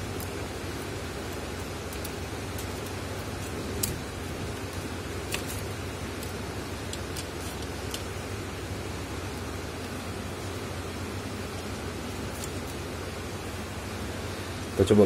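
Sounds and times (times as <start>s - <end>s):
steady background hiss: 0.0s - 15.0s.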